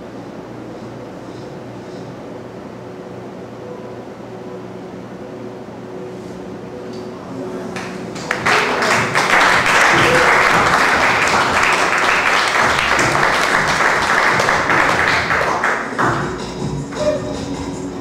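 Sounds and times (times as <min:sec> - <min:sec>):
audience applauding: 0:07.7 - 0:17.2.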